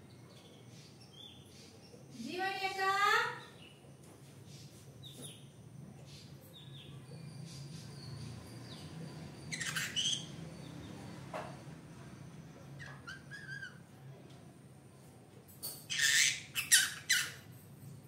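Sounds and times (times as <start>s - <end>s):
parrot squawk: 9.5s - 10.3s, 15.9s - 17.4s
parrot chirps: 9.5s - 10.4s, 12.8s - 13.8s, 15.9s - 17.4s.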